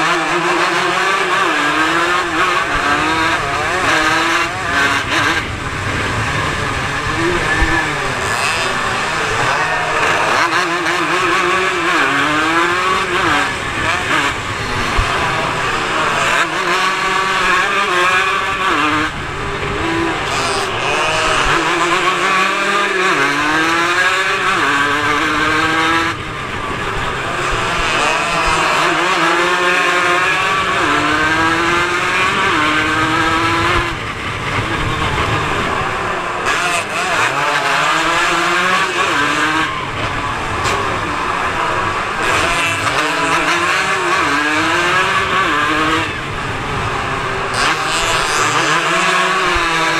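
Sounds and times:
racing motorcycle engine revving: 0:00.0 - 0:49.9.

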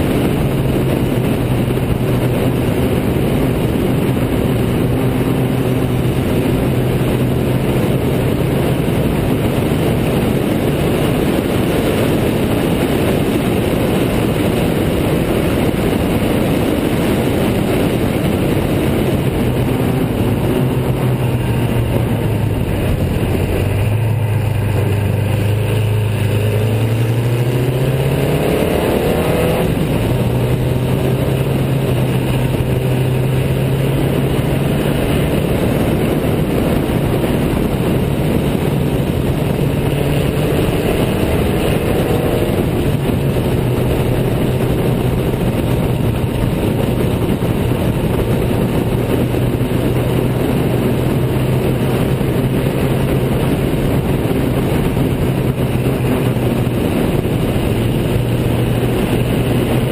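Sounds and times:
racing car engine accelerating: 0:00.0 - 0:46.7.

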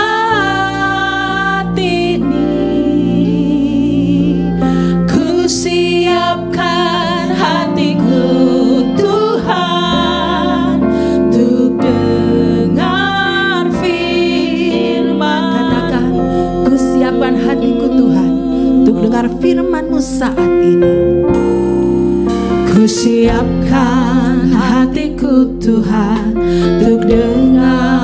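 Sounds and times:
women singing worship song: 0:00.0 - 0:21.1, 0:22.6 - 0:28.0
sustained keyboard accompaniment: 0:00.0 - 0:28.0.

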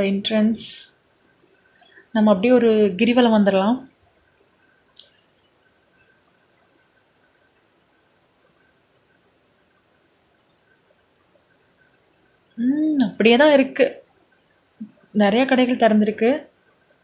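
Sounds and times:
faint steady hiss: 0:00.0 - 0:17.0
faint high chirps: 0:00.8 - 0:02.2
small click: 0:05.0 - 0:05.2.

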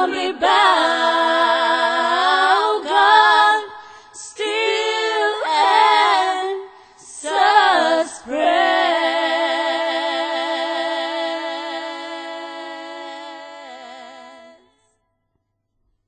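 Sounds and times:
women singing a cappella harmonies: 0:00.0 - 0:15.0.

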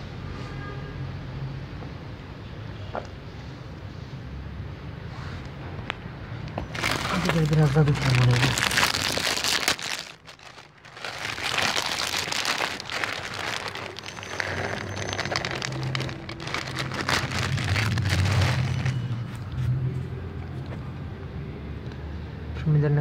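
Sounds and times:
plastic bag crinkling: 0:06.5 - 0:19.3
cat crunching kibble: 0:06.6 - 0:19.1
dry cat food rattling into bowl: 0:06.7 - 0:19.0.

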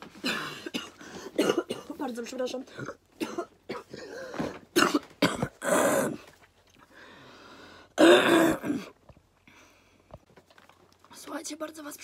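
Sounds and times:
woman coughing: 0:00.2 - 0:06.2, 0:08.0 - 0:08.9.

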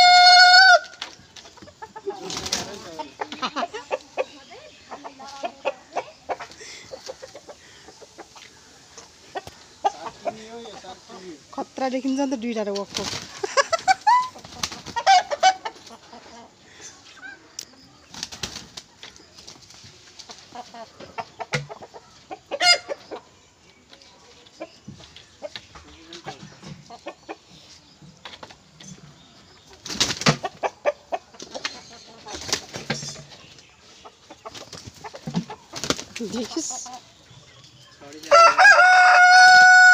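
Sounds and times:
rooster clucks and squawks: 0:00.0 - 0:11.1, 0:13.1 - 0:17.8, 0:20.3 - 0:23.6, 0:24.5 - 0:37.6, 0:38.2 - 0:39.9
wing flapping: 0:02.2 - 0:02.9, 0:12.8 - 0:15.1, 0:18.1 - 0:20.4, 0:29.8 - 0:30.5, 0:35.7 - 0:36.8.

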